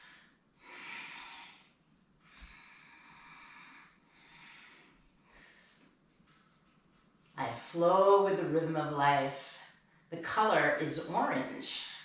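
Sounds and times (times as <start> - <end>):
woman breathing slowly: 0.0 - 7.0.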